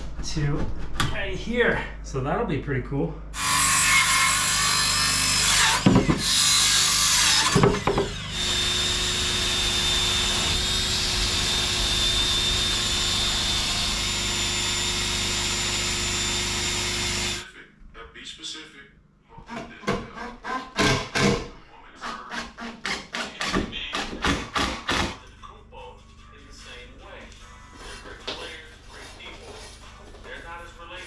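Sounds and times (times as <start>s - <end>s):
circular saw cutting wood: 3.4s - 17.4s
drill sanding disc whining: 3.4s - 17.4s.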